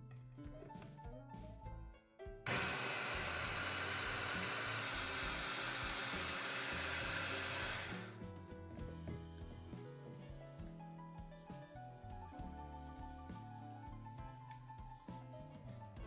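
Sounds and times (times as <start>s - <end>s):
electric food chopper running: 2.5s - 8.2s.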